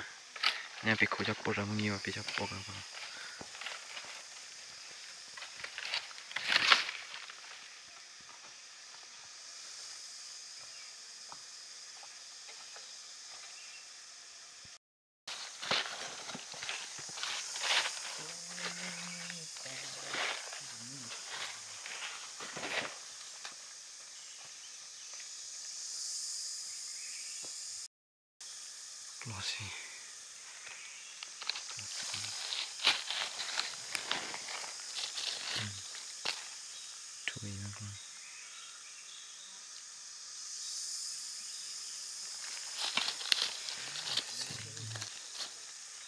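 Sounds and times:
high-pitched hiss: 0.0s - 46.0s
high-pitched insect drone: 0.0s - 46.0s
footsteps in dry leaves: 2.2s - 7.8s, 15.3s - 23.6s, 31.3s - 36.5s, 42.4s - 45.8s.

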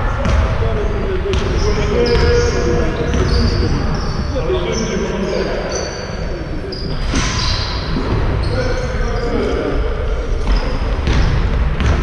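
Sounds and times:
basketball bouncing: 0.2s - 0.6s, 1.3s - 3.6s, 10.4s - 12.0s
sneakers squeaking on floor: 1.3s - 12.0s.

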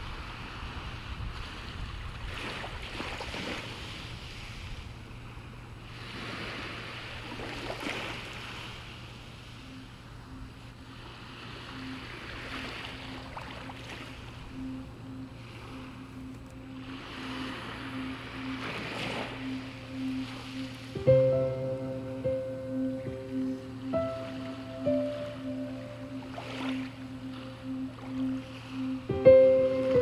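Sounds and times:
wind gusting over microphone: 0.0s - 7.4s
soft ambient music: 3.3s - 30.0s.

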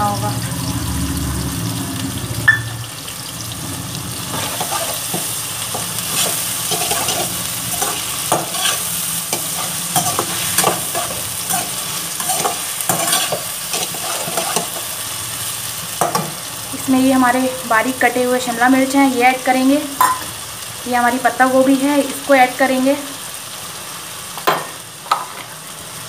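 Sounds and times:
vegetables sizzling in oil: 0.0s - 26.0s
ladle scraping and clinking pan: 4.3s - 14.8s.

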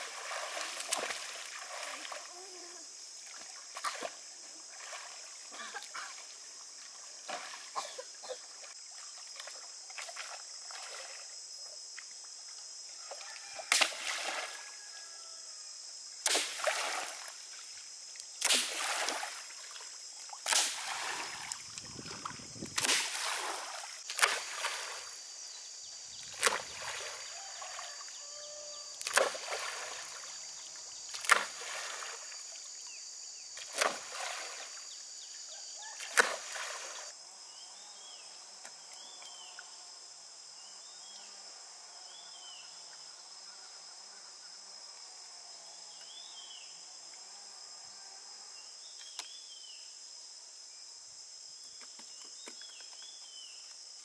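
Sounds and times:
water splashing from wading: 0.0s - 2.4s, 3.2s - 7.8s, 16.2s - 17.4s, 18.4s - 25.2s, 26.2s - 27.8s, 29.0s - 30.4s, 31.1s - 32.6s, 33.6s - 34.8s, 36.0s - 37.1s.

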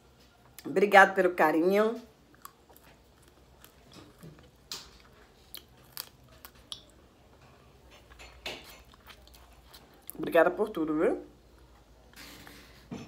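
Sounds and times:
chewing and lip smacks: 2.2s - 7.0s, 7.9s - 10.2s.

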